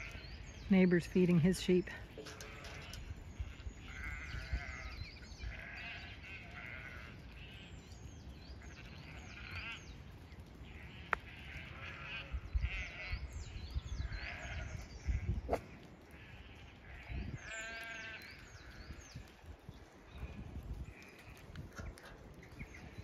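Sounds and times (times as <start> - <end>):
sheep bleating: 2.2 - 7.7, 10.7 - 13.3, 14.1 - 18.3.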